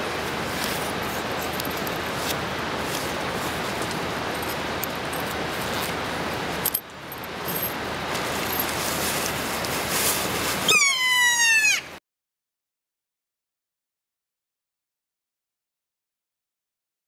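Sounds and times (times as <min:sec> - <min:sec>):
steady background hiss: 0:00.0 - 0:11.2
parrot high drawn-out cry: 0:10.7 - 0:12.0.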